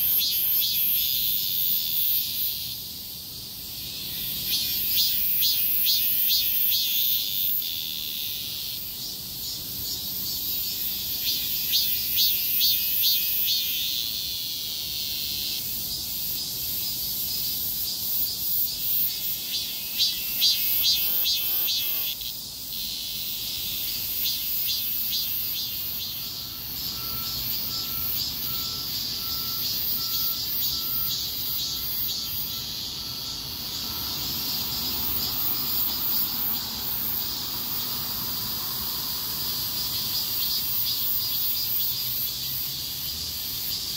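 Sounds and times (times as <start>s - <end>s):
cicadas buzzing: 0.0s - 43.9s.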